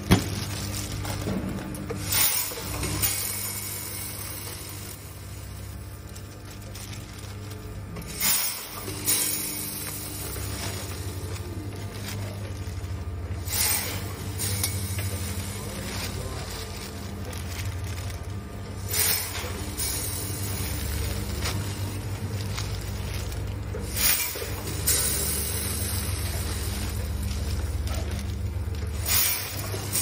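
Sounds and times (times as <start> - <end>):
vibratory feeder hum: 0.0 - 30.0
dry kibble rushing into bag: 14.5 - 29.9.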